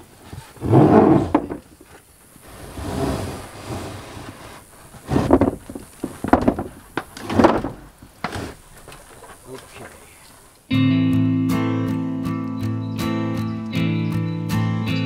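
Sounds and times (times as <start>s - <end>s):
roofing panel scraping on wood: 0.2s - 1.9s, 2.5s - 9.4s.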